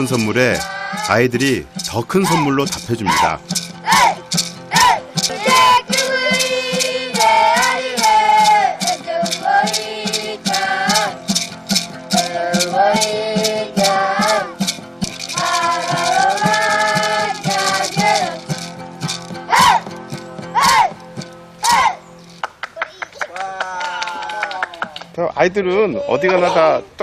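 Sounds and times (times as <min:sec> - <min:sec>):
children singing: 0:00.0 - 0:01.3, 0:01.9 - 0:11.4, 0:12.1 - 0:18.7, 0:19.4 - 0:19.9, 0:20.6 - 0:21.0
strummed acoustic guitar: 0:00.0 - 0:22.4
maraca shaking: 0:00.0 - 0:22.6.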